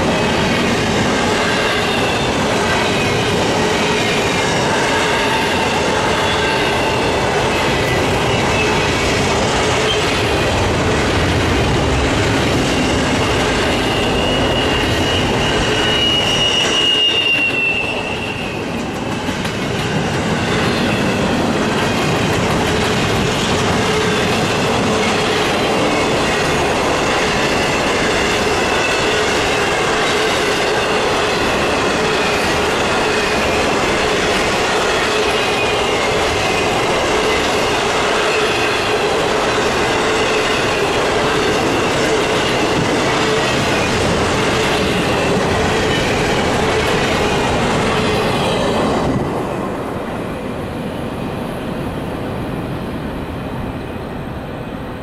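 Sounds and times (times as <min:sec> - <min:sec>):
train wheels rumbling on track: 0:00.0 - 0:55.0
wheels squealing: 0:12.5 - 0:18.8.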